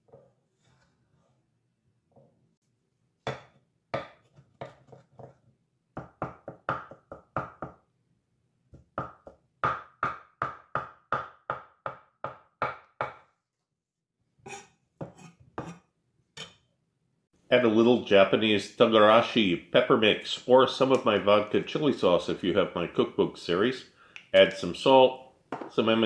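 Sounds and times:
knife chopping on wooden board: 3.3s - 5.4s, 6.0s - 7.8s, 8.7s - 13.2s.

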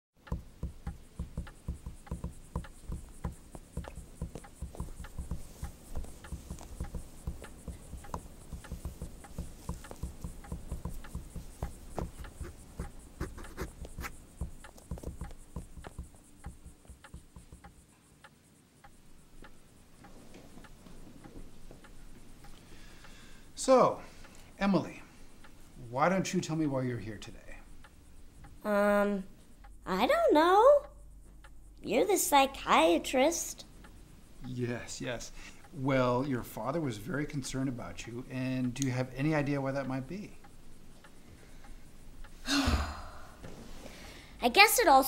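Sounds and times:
fingers tapping on wooden armrest: 0.2s - 17.8s.

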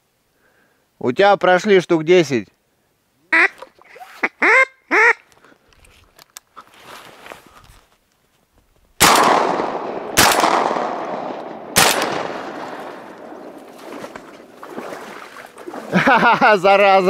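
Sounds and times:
shotgun shots with echo: 9.0s - 13.3s.

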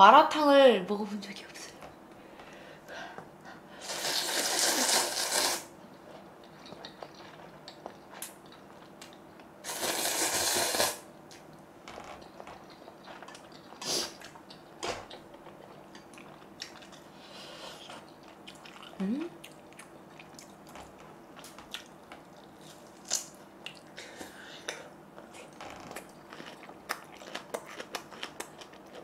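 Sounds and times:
person slurping noodles: 3.8s - 5.7s, 9.7s - 11.0s.

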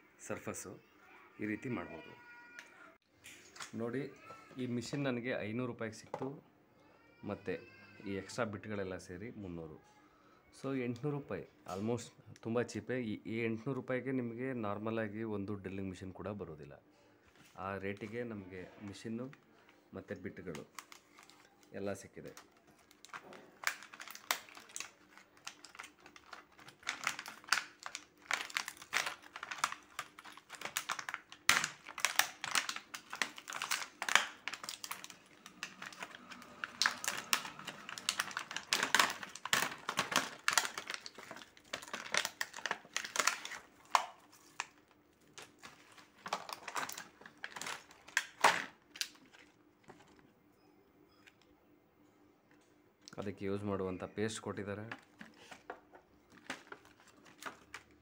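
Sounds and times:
plastic packaging crackling: 20.2s - 50.2s, 54.7s - 58.0s.

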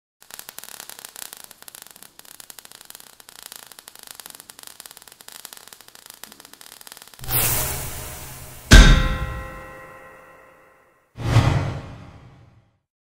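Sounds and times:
crackling sparks hiss: 0.2s - 10.0s.

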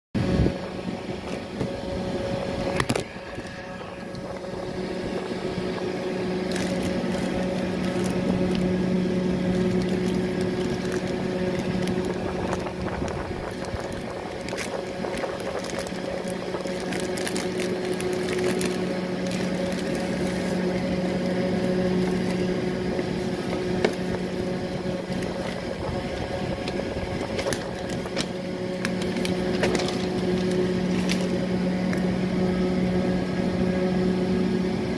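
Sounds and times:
small motor humming: 0.2s - 34.9s
plastic mailer crinkling: 2.7s - 32.1s
paper rustling: 6.4s - 24.2s, 25.0s - 31.4s.

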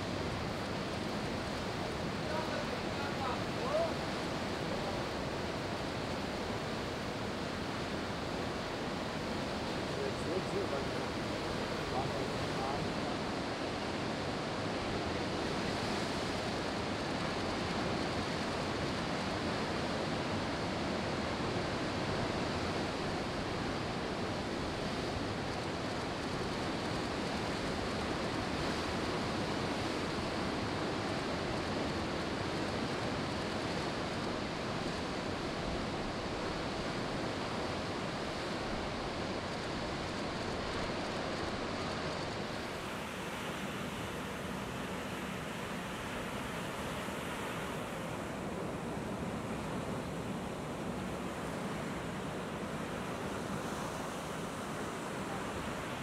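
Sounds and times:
ocean surf breaking: 0.0s - 13.0s, 34.0s - 56.0s.

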